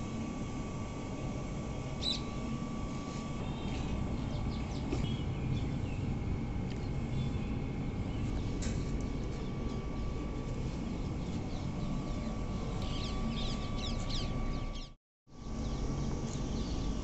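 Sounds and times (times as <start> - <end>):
faint steady whine: 0.0 - 17.0
steady low rumble: 0.0 - 17.0
bird chirps: 2.0 - 2.4, 11.4 - 15.0.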